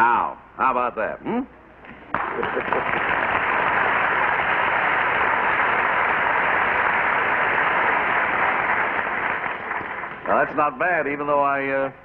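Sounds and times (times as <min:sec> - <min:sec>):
audience applauding: 0:02.1 - 0:11.0.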